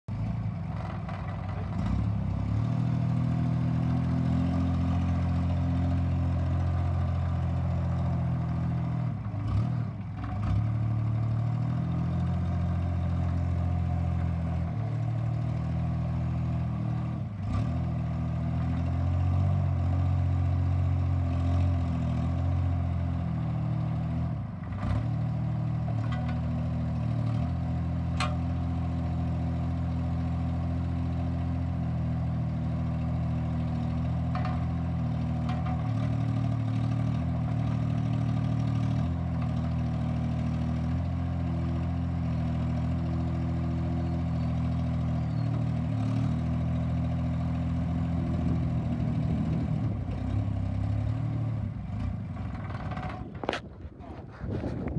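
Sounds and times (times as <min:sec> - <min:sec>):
diesel engine running: 0:00.1 - 0:54.9
clicks and clanks: 0:26.0 - 0:26.4, 0:28.1 - 0:28.5, 0:34.3 - 0:34.8, 0:35.4 - 0:36.0, 0:52.4 - 0:54.1.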